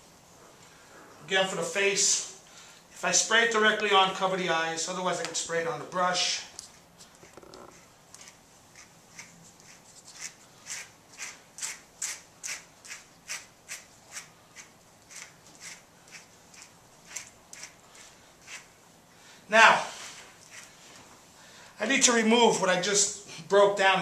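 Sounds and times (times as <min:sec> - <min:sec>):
brush swishing through dog fur: 0:12.4 - 0:18.8.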